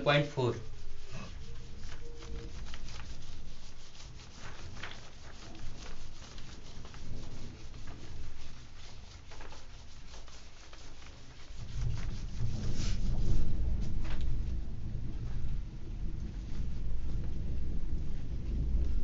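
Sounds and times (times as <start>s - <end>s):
eraser rubbing on whiteboard: 0.0s - 13.4s.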